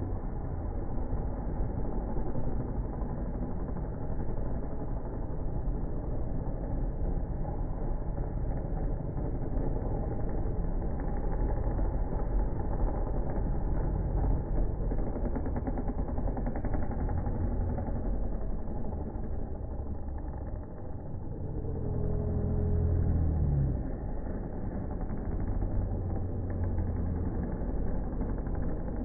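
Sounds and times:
dirt bike engines racing: 0.0s - 29.0s.

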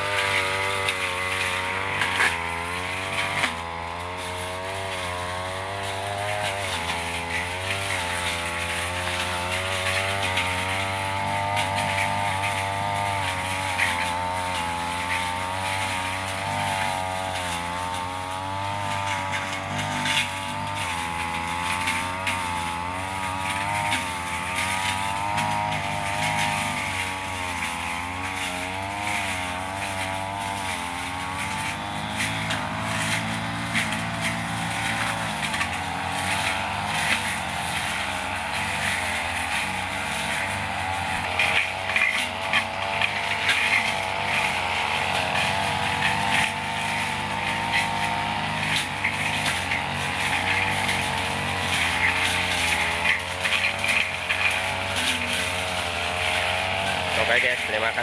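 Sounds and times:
brush cutter engine running: 0.0s - 58.0s.

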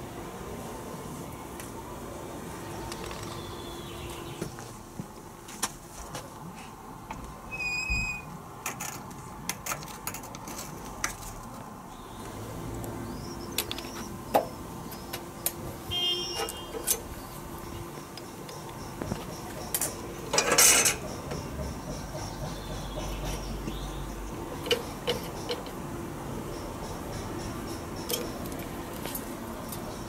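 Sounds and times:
metal tools clinking on steel bench: 16.3s - 23.8s, 24.6s - 25.8s, 26.5s - 30.0s.

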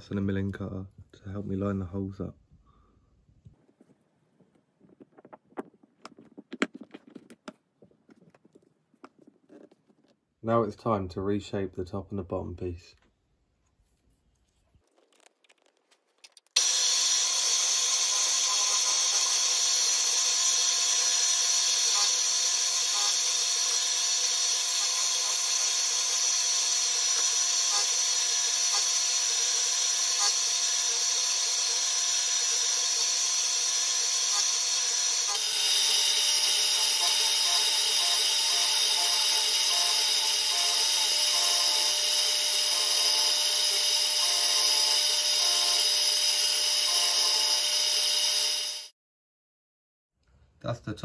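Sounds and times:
milling machine cutting metal: 16.6s - 48.9s.

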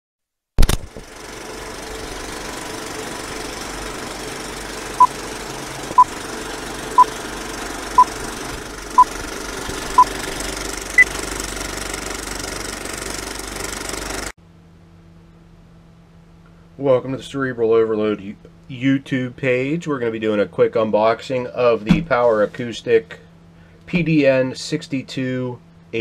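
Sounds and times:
film projector rattle: 0.6s - 14.3s.

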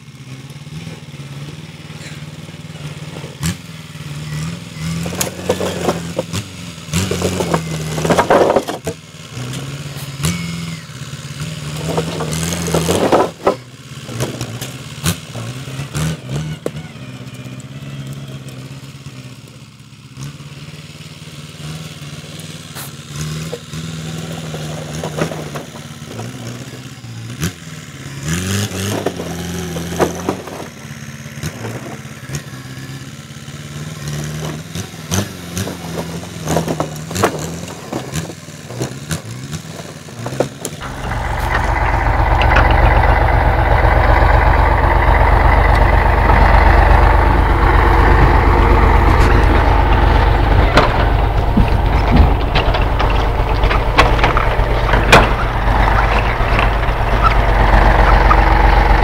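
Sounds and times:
loud heavy engine close by: 0.0s - 59.0s
tractor diesel engine running: 0.0s - 59.0s
scattered knocks: 40.8s - 59.0s.

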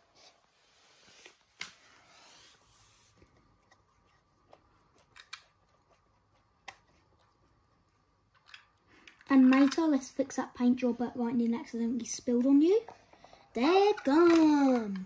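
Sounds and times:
toy cars clicking and tapping: 8.4s - 10.1s, 13.6s - 15.0s.

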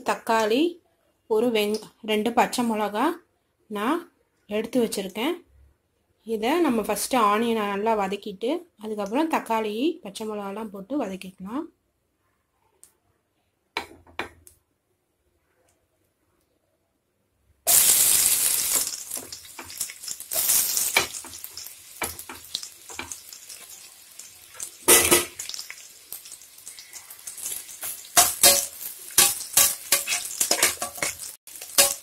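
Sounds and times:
onion frying in hot oil sizzling: 17.7s - 32.0s
spatula scraping and knocking pot: 27.8s - 32.0s.

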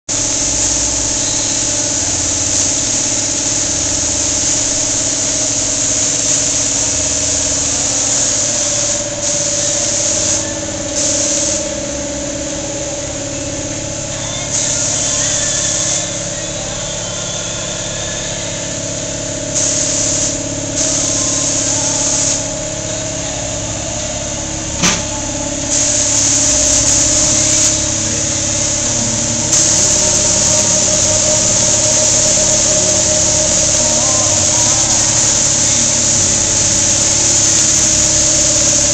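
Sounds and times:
hiss: 0.1s - 38.9s
mechanical hum: 0.1s - 38.9s
sharp click: 24.8s - 25.2s.

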